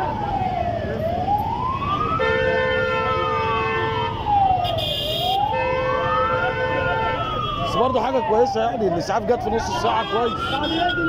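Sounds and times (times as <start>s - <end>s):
ambulance siren wailing: 0.0s - 11.0s
low rumble of engines: 0.0s - 11.0s
steady horn blaring: 2.2s - 7.6s.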